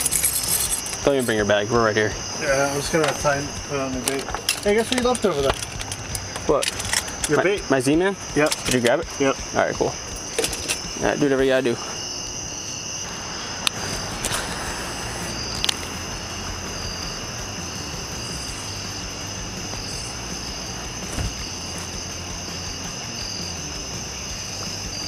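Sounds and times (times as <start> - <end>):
insects trilling: 0.0 - 25.0
low rumble: 13.1 - 24.6.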